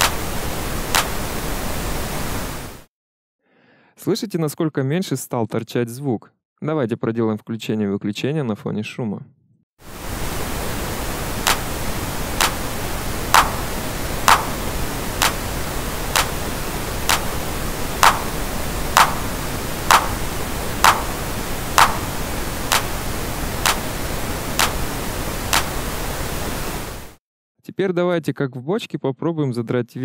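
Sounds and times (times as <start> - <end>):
clap sample: 0.0 - 1.3, 11.4 - 11.7, 12.4 - 12.7, 13.3 - 16.4, 17.1 - 17.4, 18.0 - 23.0, 23.6 - 23.9, 24.6 - 24.9, 25.5 - 25.8
steady pink noise: 0.0 - 2.9, 9.8 - 27.2.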